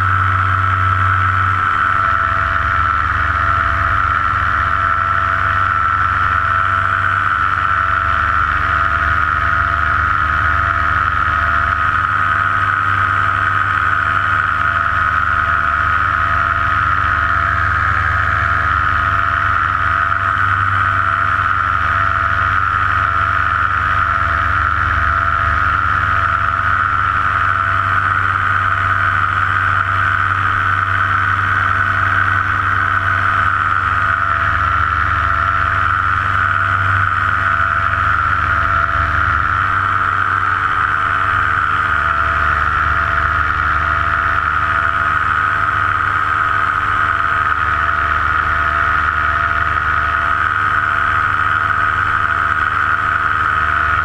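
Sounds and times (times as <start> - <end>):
paramotor engine and propeller drone: 0.0 - 54.0.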